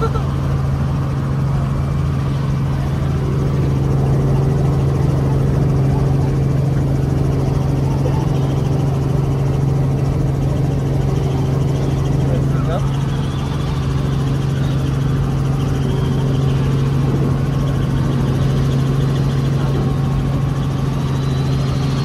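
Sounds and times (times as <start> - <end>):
helicopter engine and rotor drone: 0.0 - 22.0.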